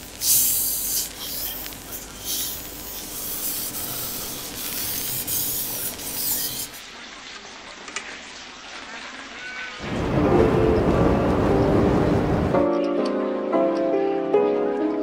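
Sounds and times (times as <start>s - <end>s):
knife scraping on whetstone: 2.3s - 6.8s.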